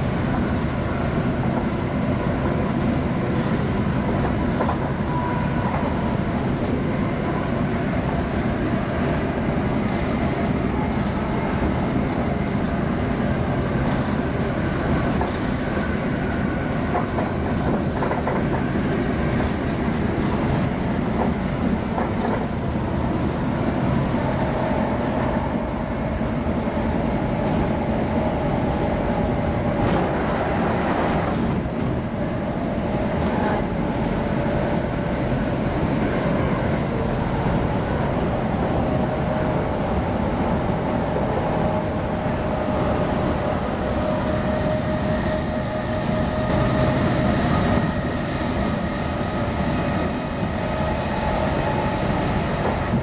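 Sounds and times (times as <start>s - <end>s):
train wheels rumbling on rail: 0.0s - 53.0s.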